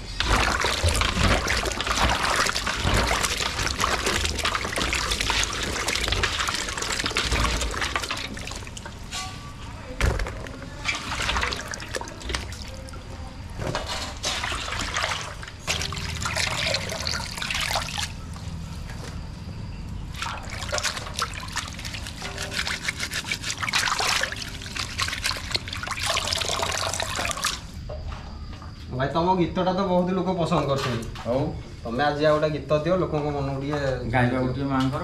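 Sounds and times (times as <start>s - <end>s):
water trickling and splashing: 0.0s - 9.0s, 10.8s - 13.1s, 14.2s - 18.4s, 20.1s - 27.7s.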